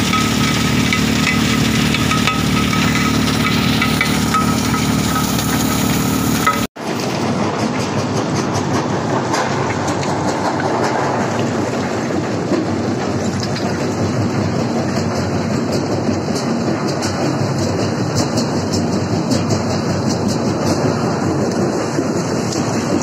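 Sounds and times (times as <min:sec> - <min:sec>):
machine hum: 0:00.0 - 0:06.7
rock rattling in steel pan: 0:00.0 - 0:06.7.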